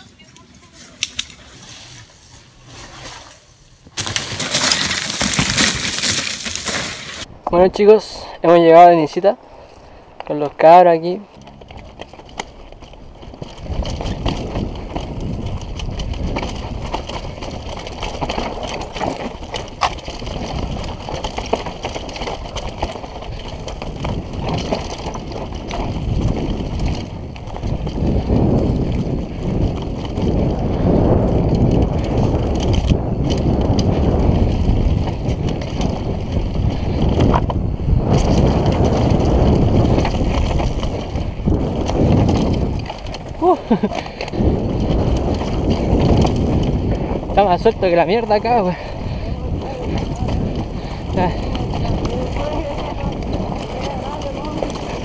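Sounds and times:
bike tyre rumble on dirt: 0:00.0 - 0:55.0
bike rattling and knocking: 0:03.9 - 0:07.3, 0:10.6 - 0:55.0
wind on microphone: 0:11.4 - 0:55.0.

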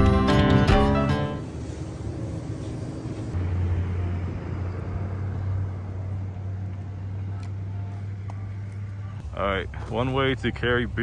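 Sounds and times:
music: 0:00.0 - 0:01.4
vehicle engine running: 0:00.0 - 0:11.0.

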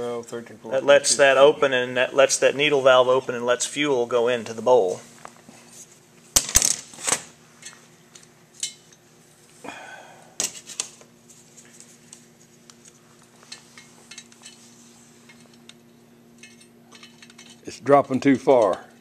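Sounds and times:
steady low hum: 0:00.0 - 0:19.0
metal parts clinking on steel table: 0:16.4 - 0:17.7.

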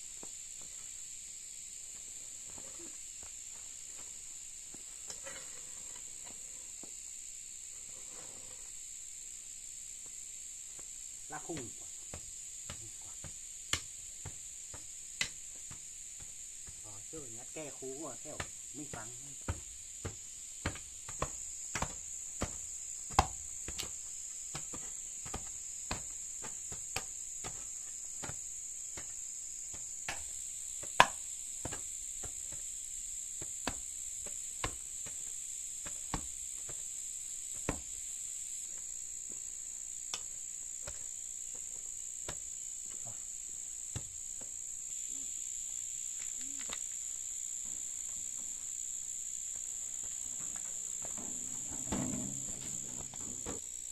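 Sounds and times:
hoes chopping into soil: 0:11.5 - 0:16.9, 0:17.8 - 0:32.8, 0:33.4 - 0:36.9, 0:37.5 - 0:38.0, 0:40.1 - 0:41.6, 0:50.0 - 0:53.9
high-pitched insect drone: 0:15.6 - 0:33.2, 0:33.9 - 0:53.9.

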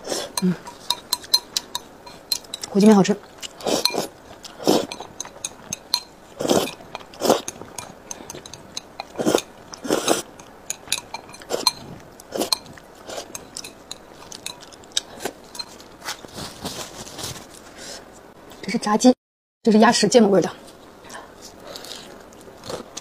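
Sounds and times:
wet chewing: 0:00.0 - 0:16.5
chopsticks clicking on ceramic bowl: 0:00.4 - 0:02.8, 0:04.9 - 0:09.8, 0:10.4 - 0:11.8, 0:12.5 - 0:15.7
person slurping noodles: 0:03.6 - 0:05.0, 0:06.4 - 0:10.3.

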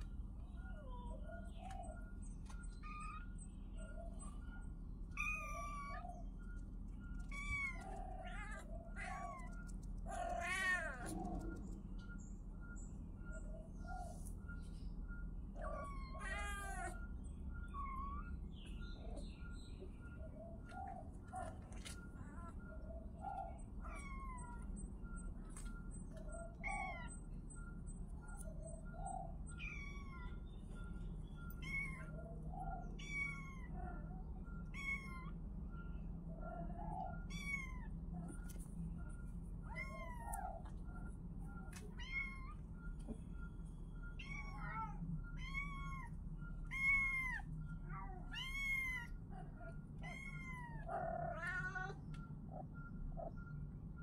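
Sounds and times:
kitten meowing: 0:15.6 - 0:17.0, 0:48.2 - 0:49.2, 0:50.0 - 0:52.0.

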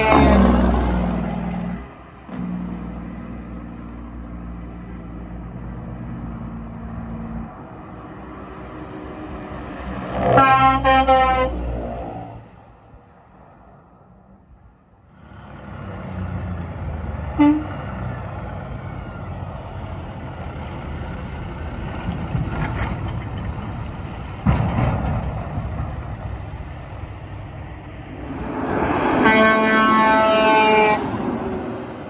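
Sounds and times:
truck air horn blast: 0:00.0 - 0:03.3, 0:10.0 - 0:12.3, 0:17.3 - 0:17.9, 0:28.4 - 0:31.6.

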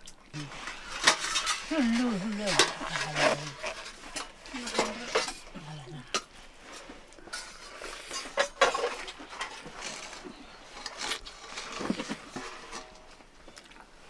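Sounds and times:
chewing: 0:13.4 - 0:14.0.

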